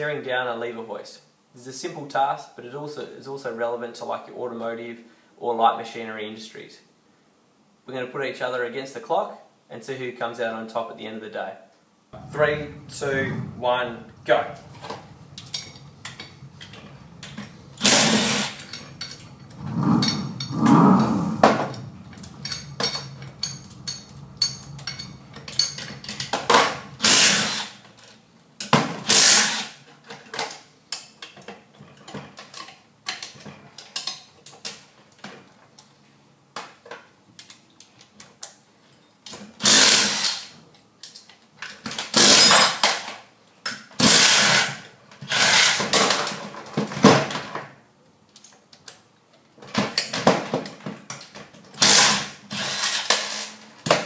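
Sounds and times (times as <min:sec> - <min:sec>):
spanners and steel parts clinking: 0:14.8 - 0:29.6
impact wrench hammering: 0:17.8 - 0:27.7.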